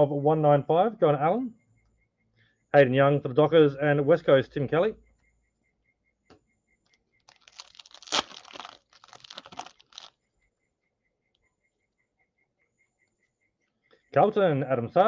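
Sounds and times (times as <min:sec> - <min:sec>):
foil pack tearing and crinkling: 0:07.3 - 0:10.1.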